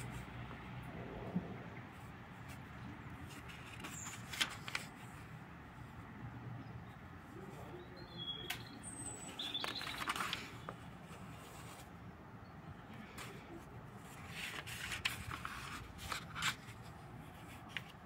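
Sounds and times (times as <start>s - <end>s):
paper pages being turned: 2.5s - 5.2s, 9.3s - 11.9s, 14.0s - 18.0s.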